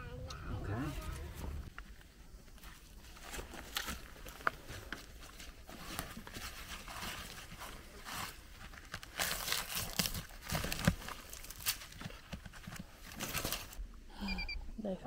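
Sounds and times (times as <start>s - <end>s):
hands scratching dry soil: 2.5s - 13.8s.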